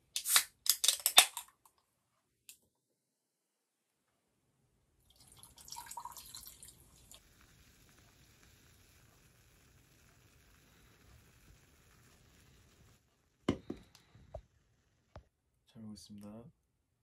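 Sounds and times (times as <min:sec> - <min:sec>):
faint steady hiss: 0:03.8 - 0:16.7
beer pouring into a glass: 0:05.0 - 0:09.9.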